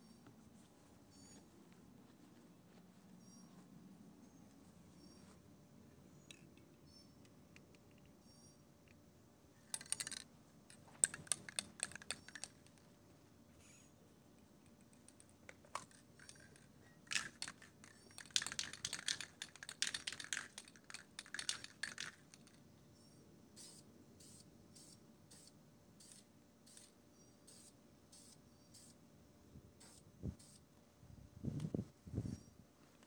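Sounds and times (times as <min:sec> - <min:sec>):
spray can ball rattling: 0:15.0 - 0:22.6.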